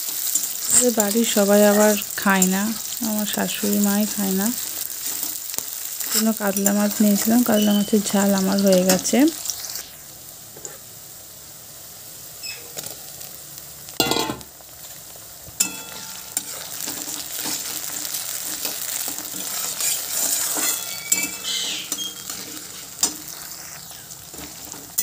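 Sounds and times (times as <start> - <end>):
sudden loud sizzle burst: 0.0 - 25.0
vegetables sizzling in hot oil: 0.0 - 25.0
metal spatula scraping wok: 15.6 - 25.0.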